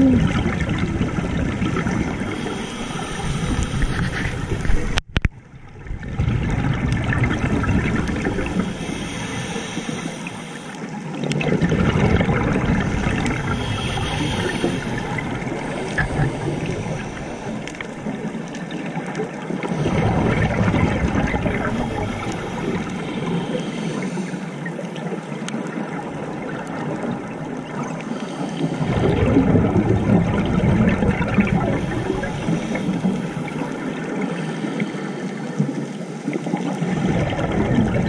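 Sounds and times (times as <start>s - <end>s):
diver exhaling bubbles underwater: 0.0s - 5.0s, 5.8s - 10.2s, 11.2s - 18.4s, 19.6s - 23.4s, 28.7s - 34.2s, 36.5s - 38.0s.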